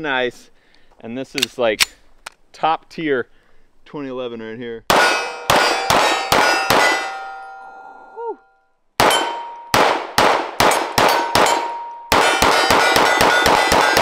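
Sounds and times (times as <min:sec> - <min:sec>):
pistol shots: 0:04.9 - 0:07.2, 0:09.0 - 0:14.0
metallic ringing: 0:05.0 - 0:09.8, 0:11.0 - 0:14.0.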